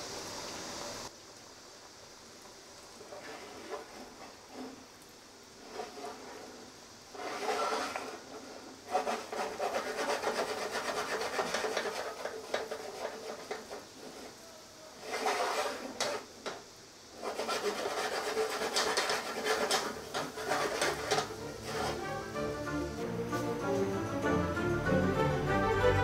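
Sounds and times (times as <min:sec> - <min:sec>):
frying pan scraping on burner: 0:03.0 - 0:23.4.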